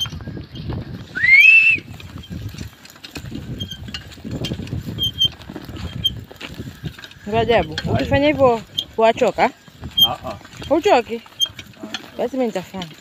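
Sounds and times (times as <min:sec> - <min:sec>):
footsteps of cattle and person: 0:00.0 - 0:13.0
plough scraping through soil: 0:00.0 - 0:13.0
rising whistle: 0:01.1 - 0:01.9.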